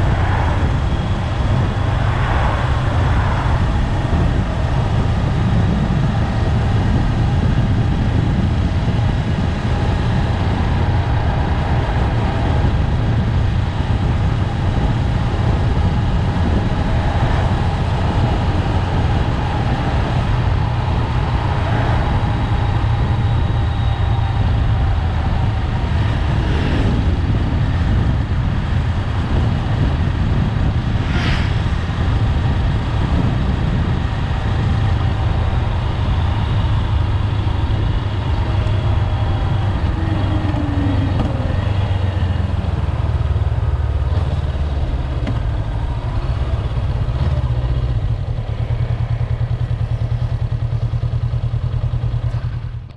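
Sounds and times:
motorcycle engine drone: 0.0s - 52.9s.

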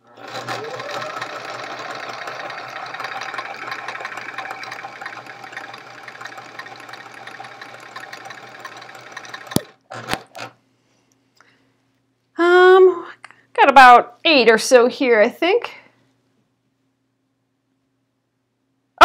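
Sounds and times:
sewing machine stitching: 0.0s - 10.6s.

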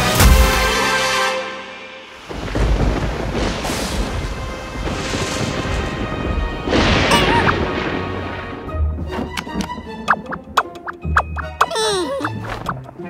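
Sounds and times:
background music: 0.0s - 2.2s, 4.8s - 13.0s
rain: 2.0s - 10.1s
rolling thunder: 2.2s - 10.5s.

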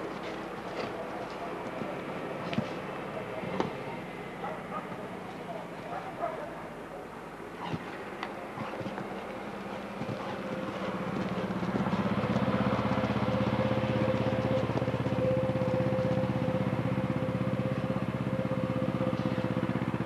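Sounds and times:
motor engine running: 8.4s - 20.0s.

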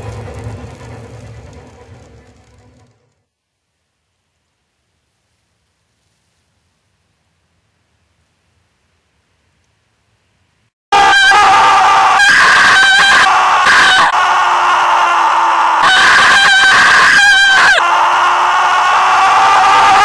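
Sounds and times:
woman screaming: 11.0s - 20.0s.

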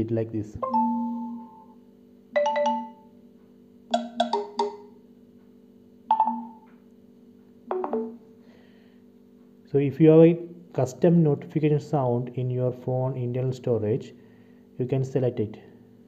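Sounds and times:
phone notification chimes: 0.6s - 1.7s, 2.4s - 3.1s, 3.9s - 4.9s, 6.1s - 6.7s, 7.7s - 8.2s.

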